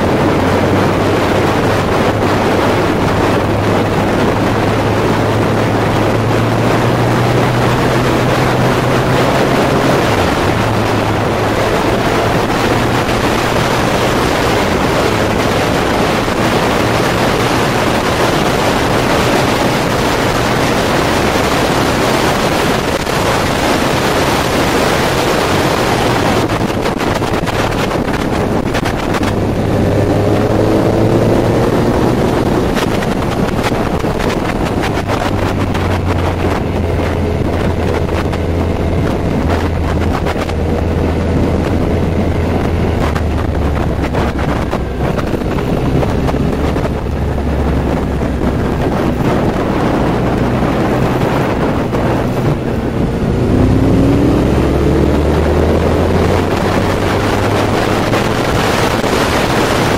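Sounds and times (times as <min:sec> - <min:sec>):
motorcycle engine running: 0:00.0 - 0:59.9
wind noise on microphone: 0:00.0 - 0:59.9.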